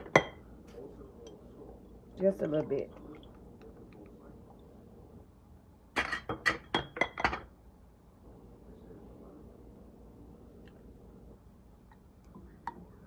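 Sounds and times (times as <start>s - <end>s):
glass and kitchenware clinking: 0.0s - 0.4s, 6.0s - 7.5s.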